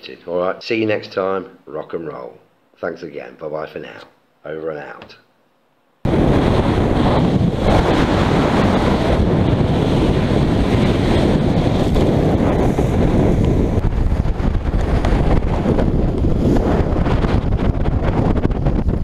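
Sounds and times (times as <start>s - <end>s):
waves crashing against hull: 6.1s - 19.0s
wind buffeting microphone: 6.1s - 19.0s.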